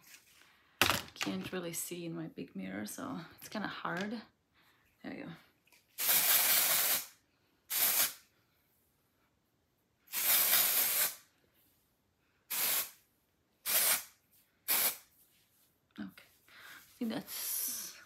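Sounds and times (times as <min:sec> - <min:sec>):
aerosol can spraying: 0:06.0 - 0:08.2, 0:10.1 - 0:11.2, 0:12.5 - 0:13.0, 0:13.6 - 0:14.1, 0:14.7 - 0:15.1.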